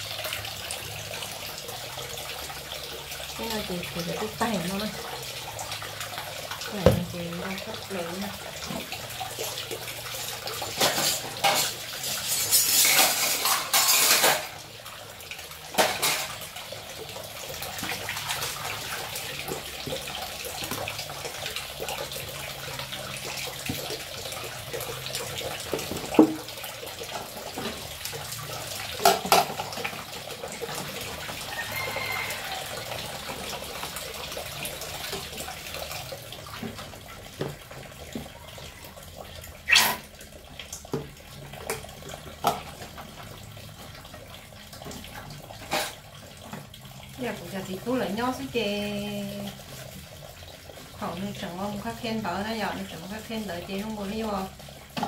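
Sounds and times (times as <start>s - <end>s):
tap water running into sink: 0.0s - 55.0s
dishes clattering: 10.6s - 14.6s, 15.7s - 16.4s, 29.0s - 29.9s.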